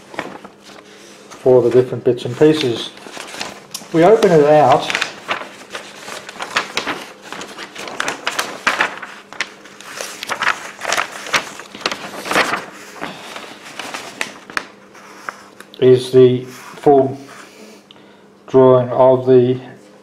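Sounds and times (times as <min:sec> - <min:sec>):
paper rustling and crinkling: 0:00.0 - 0:15.7.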